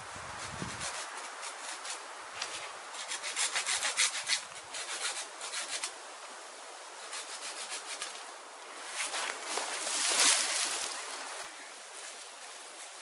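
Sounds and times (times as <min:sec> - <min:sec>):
rasping scrapes on cane frame: 0:00.4 - 0:06.0, 0:07.0 - 0:08.2.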